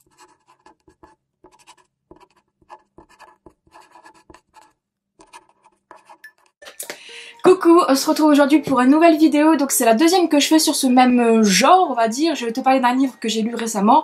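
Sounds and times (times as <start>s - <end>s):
pen scratching on paper: 0.0s - 6.6s.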